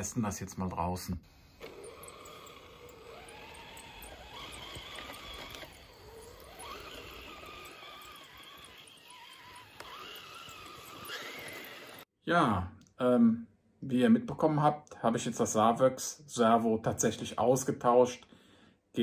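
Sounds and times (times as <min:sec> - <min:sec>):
electric motor and gearbox whining: 0:01.5 - 0:12.1.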